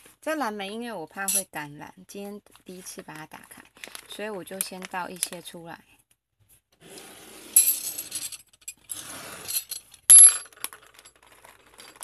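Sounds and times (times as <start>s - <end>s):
plastic bag crinkling: 3.4s - 5.3s.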